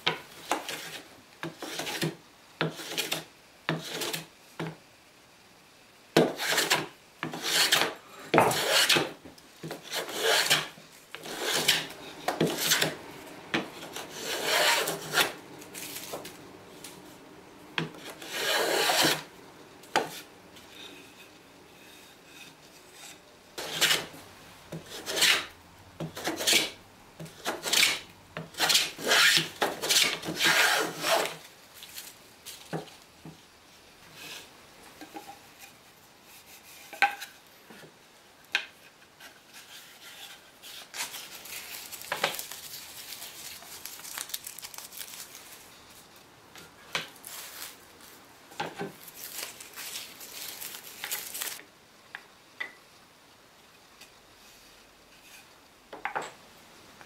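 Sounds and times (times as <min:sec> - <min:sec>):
plane rasping on wood: 0:07.4 - 0:09.0, 0:09.8 - 0:15.5, 0:17.8 - 0:19.3, 0:24.8 - 0:25.5, 0:27.6 - 0:28.0, 0:28.6 - 0:31.3.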